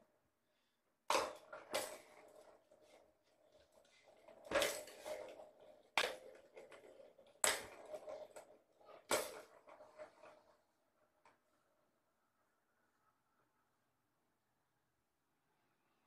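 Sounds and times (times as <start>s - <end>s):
balls knocking in plastic track: 1.1s - 11.4s.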